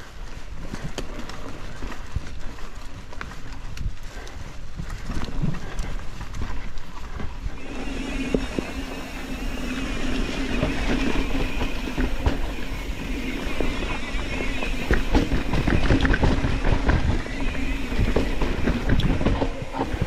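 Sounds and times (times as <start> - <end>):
bike rattling over bumps: 0.0 - 20.0
bike tyres on dirt and leaves: 0.0 - 20.0
wind rumbling on microphone: 0.0 - 20.0
freewheeling hub buzz: 7.5 - 20.0.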